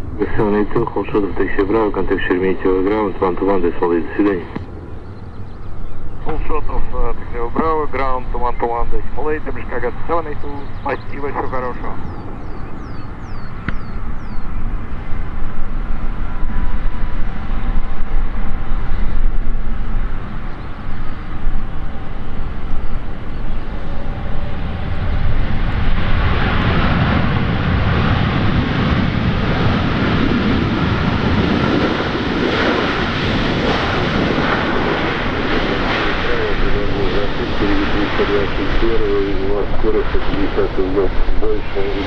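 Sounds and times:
jet engines landing rumble: 0:00.0 - 0:42.0
reverse thrust roar: 0:11.1 - 0:42.0.

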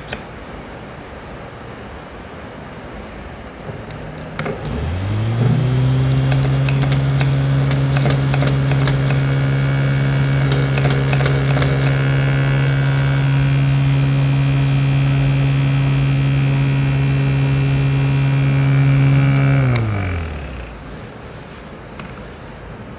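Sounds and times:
small fan motor humming: 0:04.0 - 0:21.9.

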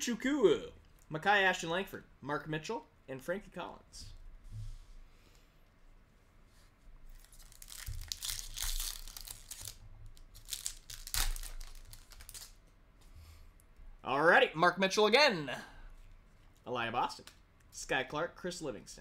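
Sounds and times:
foil pack tearing and crinkling: 0:07.2 - 0:12.6.

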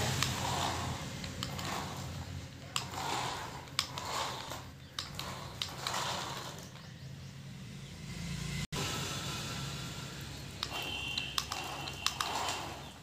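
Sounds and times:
toy car motor whirring: 0:00.0 - 0:07.0, 0:10.2 - 0:13.0
sharp clicks: 0:01.2 - 0:02.0, 0:02.6 - 0:06.8, 0:10.6 - 0:13.0.

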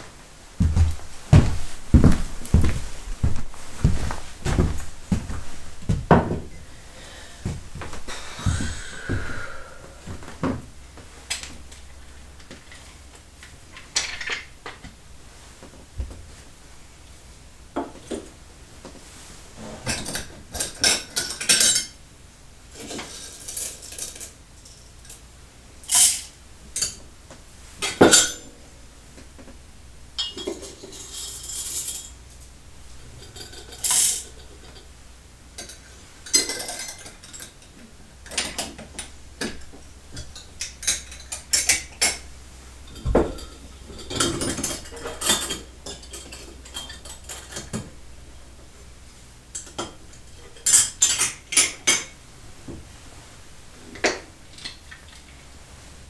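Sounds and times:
small hard objects clinking: 0:30.2 - 0:32.2, 0:33.2 - 0:34.5.

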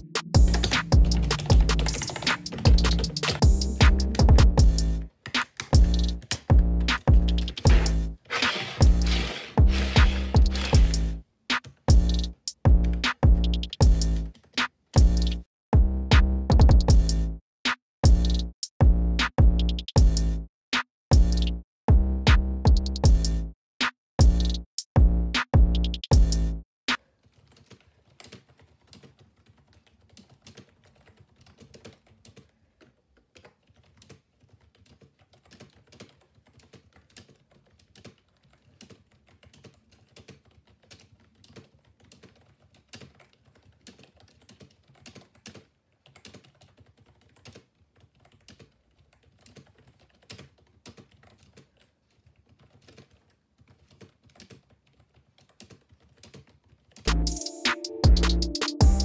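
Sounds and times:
loud electronic music: 0:00.0 - 0:05.0, 0:05.8 - 0:11.2, 0:57.1 - 0:59.0
plastic keyboard typing: 0:00.5 - 0:03.4, 0:05.2 - 0:06.5, 0:07.5 - 0:11.0, 0:14.3 - 0:14.7, 0:27.0 - 0:57.1.

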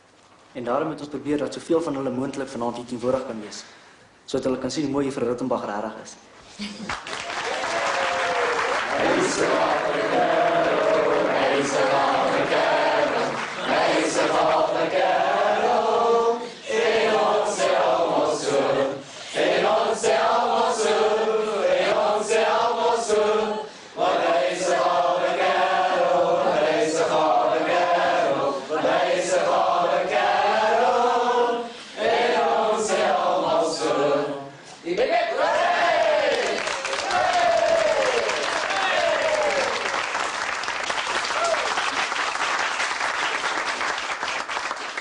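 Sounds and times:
choir singing: 0:08.9 - 0:36.6.

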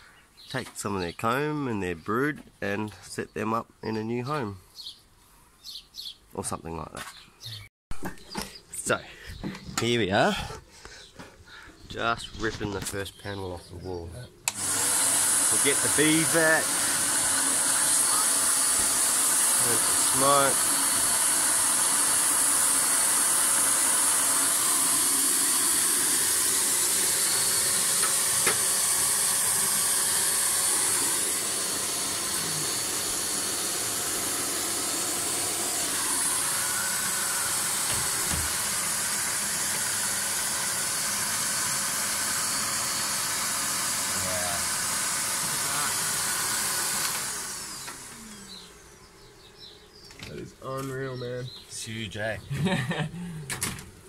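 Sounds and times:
vacuum motor hissing rush: 0:14.5 - 0:49.7.

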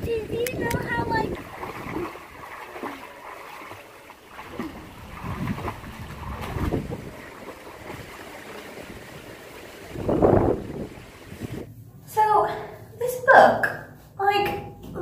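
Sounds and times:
wind rumbling on microphone: 0:00.0 - 0:02.9, 0:04.3 - 0:11.7.

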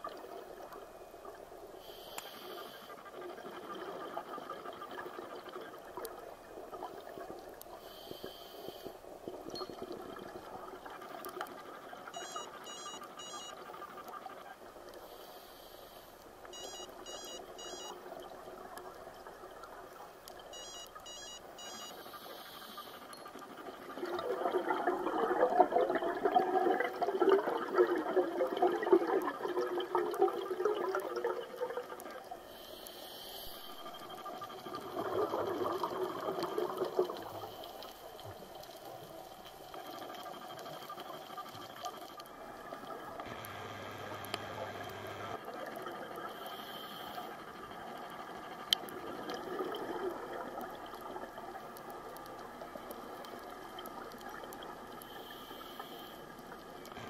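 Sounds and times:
faint underwater hiss: 0:00.0 - 0:57.0
gush of underwater bubbles: 0:23.9 - 0:32.0, 0:33.9 - 0:37.5.

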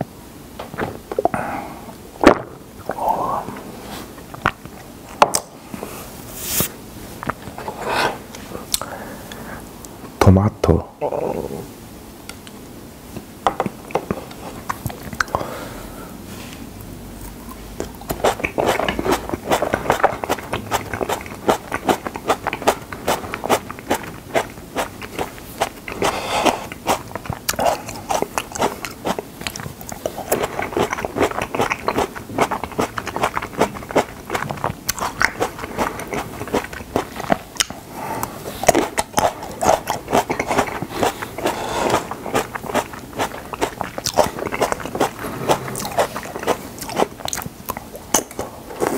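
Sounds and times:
chewing tomatoes wet pops: 0:13.5 - 0:15.4, 0:17.2 - 0:48.9.

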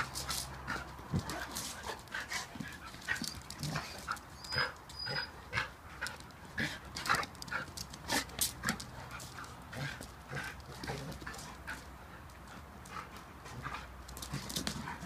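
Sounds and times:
dogs play-fighting vocalising: 0:00.1 - 0:15.0.

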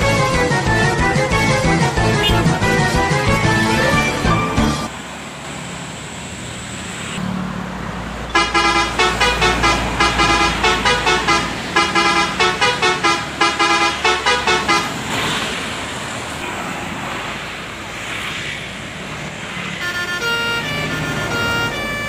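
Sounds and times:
truck horn tooting a tune: 0:00.0 - 0:04.9, 0:08.3 - 0:15.1, 0:19.8 - 0:22.0
road traffic: 0:00.0 - 0:22.0.

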